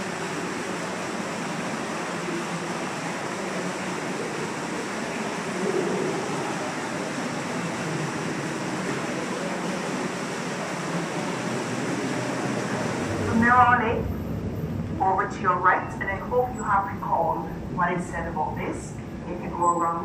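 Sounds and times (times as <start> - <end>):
waterfall pouring into pool: 0.0 - 13.1.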